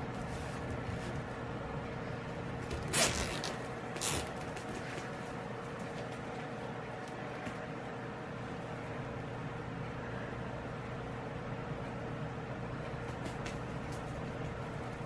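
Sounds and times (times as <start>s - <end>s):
low hum of room noise: 0.0s - 15.0s.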